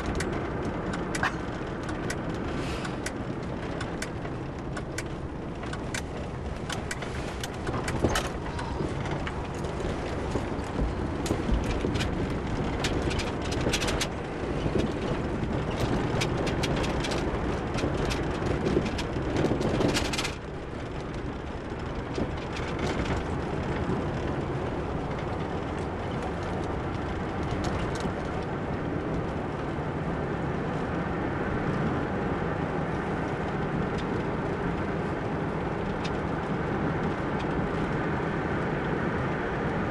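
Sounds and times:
clicks and rattles: 0:00.0 - 0:28.5
car cabin road and engine noise: 0:00.0 - 0:39.9.

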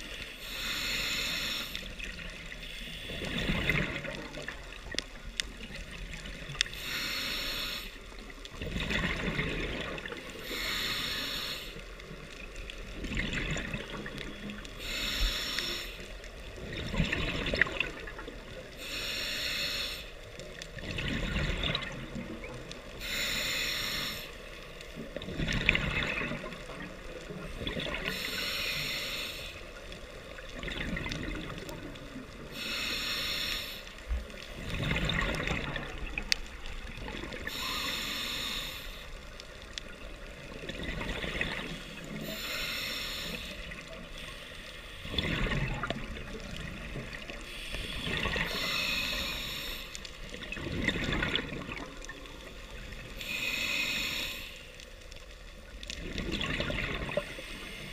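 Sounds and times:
hissing regulator inhale: 0:00.0 - 0:03.6, 0:06.6 - 0:08.3, 0:10.2 - 0:12.2, 0:14.7 - 0:16.5, 0:18.7 - 0:20.8, 0:22.9 - 0:25.3, 0:28.0 - 0:30.2, 0:32.4 - 0:34.7, 0:37.4 - 0:40.2, 0:41.7 - 0:45.3, 0:47.2 - 0:50.3, 0:52.4 - 0:55.0, 0:57.2 - 0:57.9
bubbling exhaust bubbles: 0:50.4 - 0:52.1.

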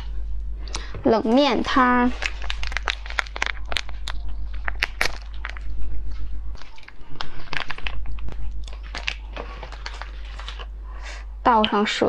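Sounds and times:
sachet crinkling and tearing: 0:02.1 - 0:05.7, 0:06.5 - 0:10.8.

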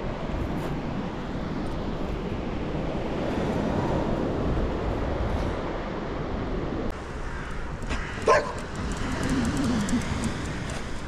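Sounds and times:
dog barking sharply: 0:08.2 - 0:08.6.

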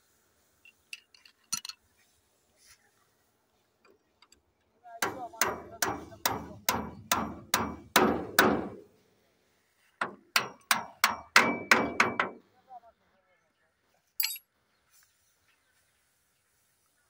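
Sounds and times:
hammer blows on metal: 0:05.0 - 0:08.8, 0:10.0 - 0:12.4.

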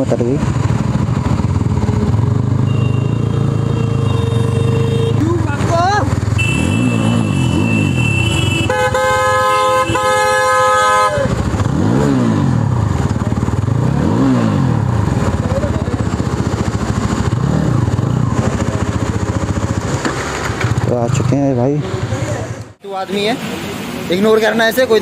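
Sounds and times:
vehicle engine revving: 0:00.0 - 0:22.7
multi-tone vehicle horn honking: 0:02.6 - 0:05.6, 0:06.3 - 0:11.4.

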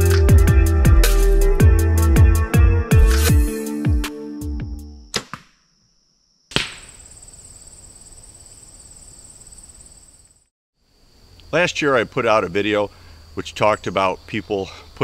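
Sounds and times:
insects droning: 0:05.6 - 0:15.0
bow string crack: 0:06.5 - 0:07.2.

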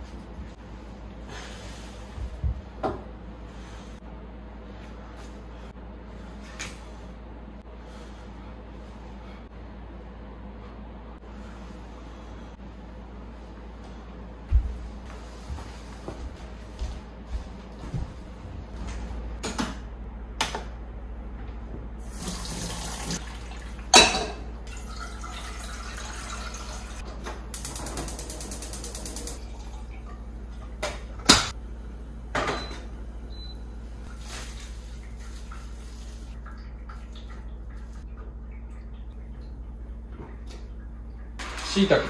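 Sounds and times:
water pouring into pot: 0:22.1 - 0:24.0, 0:24.7 - 0:27.0, 0:29.0 - 0:30.2.

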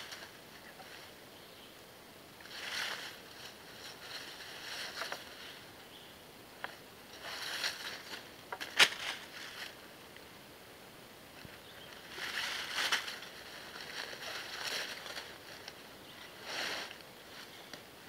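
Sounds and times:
rustling in dry leaf litter: 0:00.0 - 0:01.6, 0:02.4 - 0:05.8, 0:07.0 - 0:09.9, 0:11.3 - 0:18.0
bungee cord rustling: 0:02.4 - 0:05.6.

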